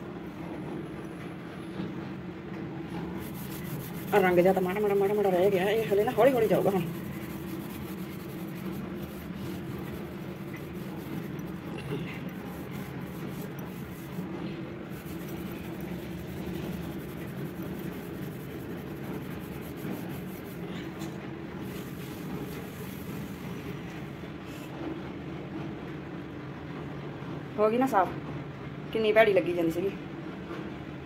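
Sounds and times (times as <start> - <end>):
constant low hum: 0.0 - 27.5
scrubbing tiles by hand: 3.1 - 23.7.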